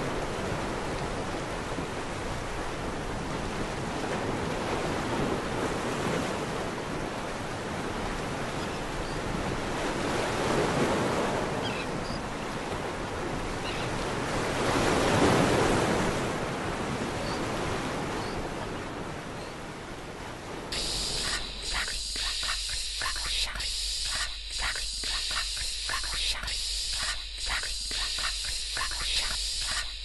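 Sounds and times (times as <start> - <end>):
steady rushing noise: 20.7 - 30.0
faint high chirps: 20.8 - 30.0.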